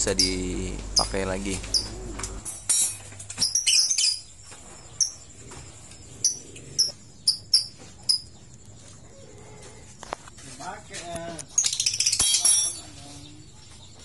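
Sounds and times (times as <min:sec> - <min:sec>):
bird chirping: 0:00.0 - 0:09.8, 0:10.9 - 0:14.0
metal parts clattering: 0:12.1 - 0:13.0.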